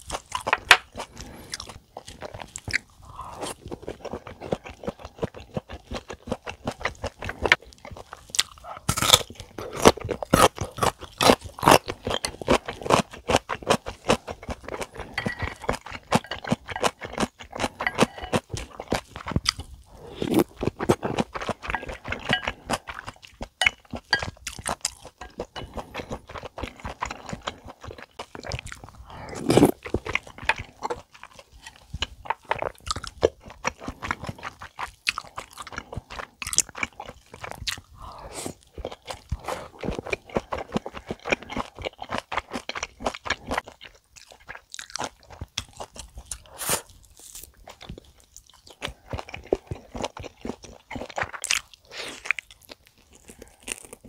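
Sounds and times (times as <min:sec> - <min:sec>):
wet chewing mouth clicks: 0:29.5 - 0:54.0.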